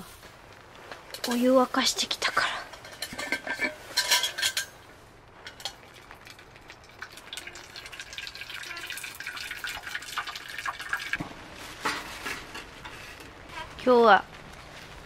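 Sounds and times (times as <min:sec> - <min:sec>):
water pouring into metal tin: 0:05.6 - 0:11.2.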